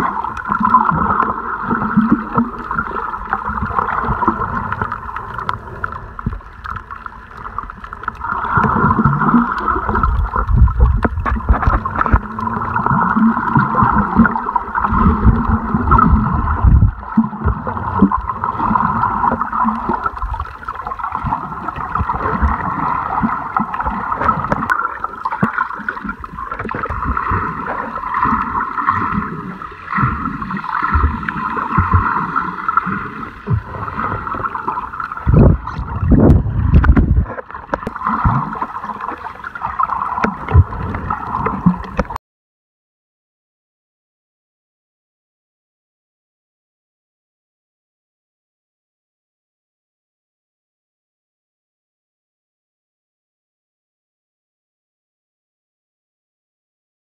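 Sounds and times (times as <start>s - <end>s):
low surges of water: 0.0s - 42.2s
water sloshing and gurgling: 0.0s - 42.2s.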